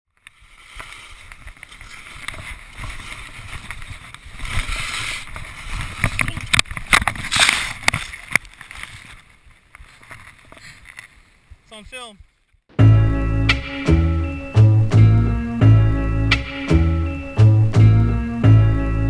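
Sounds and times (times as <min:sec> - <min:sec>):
skis scraping over snow: 0:00.3 - 0:12.1
wind rumbling on microphone: 0:00.4 - 0:12.3.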